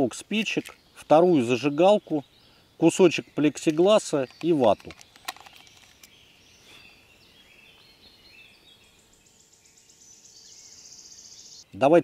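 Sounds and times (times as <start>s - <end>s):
high bird chirps: 0.6s - 12.0s
insect trill: 7.4s - 11.7s.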